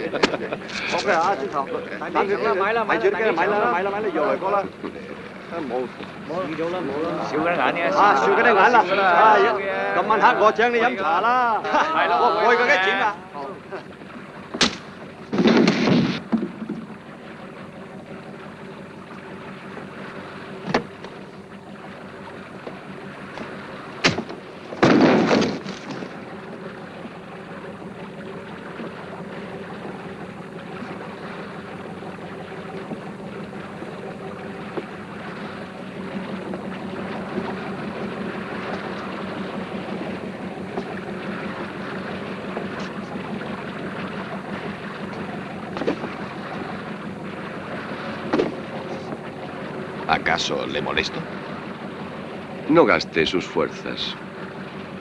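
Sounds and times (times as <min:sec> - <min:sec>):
boat engine droning: 0:00.0 - 0:55.0
sea wash: 0:00.0 - 0:55.0
sharp knocks: 0:14.5 - 0:16.9, 0:23.4 - 0:26.1.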